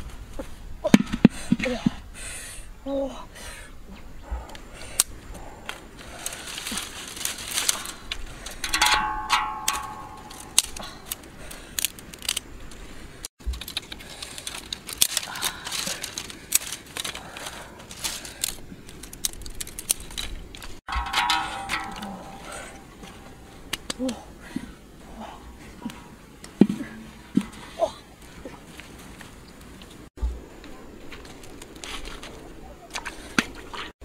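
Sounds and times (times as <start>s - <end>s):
sharp clicks and clinks: 8.6s - 10.8s.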